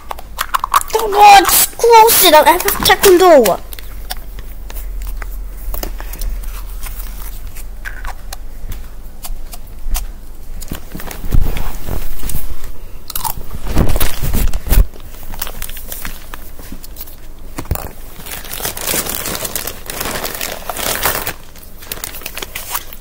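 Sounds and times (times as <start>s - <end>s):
handling noise on microphone: 10.7s - 12.8s.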